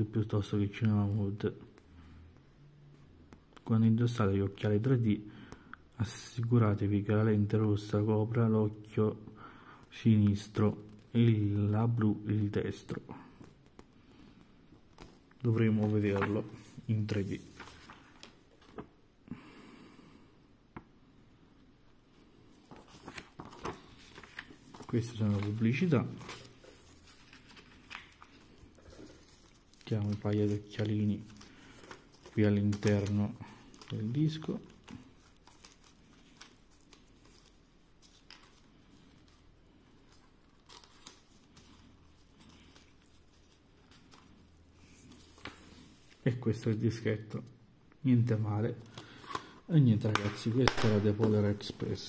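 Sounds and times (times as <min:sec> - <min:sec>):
paper rustling: 0:14.9 - 0:19.0, 0:22.4 - 0:46.2.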